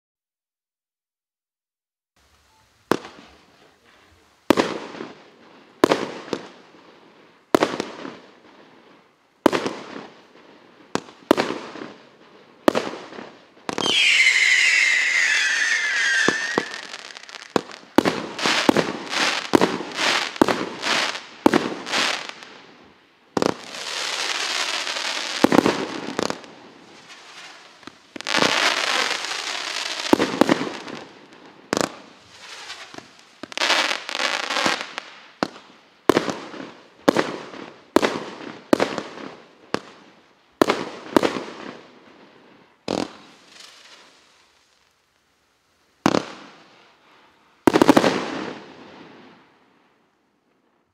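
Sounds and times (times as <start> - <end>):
dense firework crackling: 2.8 - 41.8, 42.6 - 45.0, 45.8 - 49.6
firework shots: 4.4 - 5.2, 12.6 - 22.4, 23.4 - 31.1, 46.0 - 46.6, 47.7 - 48.7
firework whistle falling in pitch: 13.8 - 17.3.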